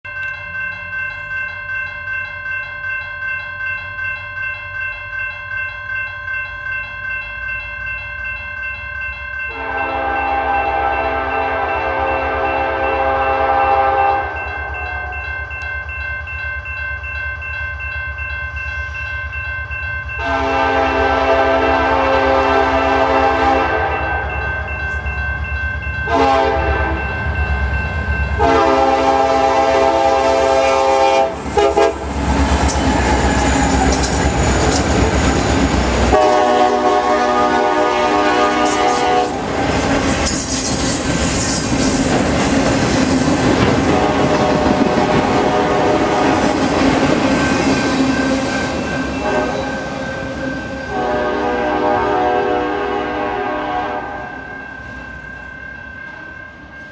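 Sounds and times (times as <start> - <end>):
rail cars rolling: 0.0 - 56.9
train horn blasts: 9.5 - 15.3, 20.2 - 24.5, 26.1 - 27.2, 28.3 - 35.1, 35.9 - 39.6, 43.8 - 46.6, 49.1 - 54.6
locomotive engine rumble: 30.8 - 52.0.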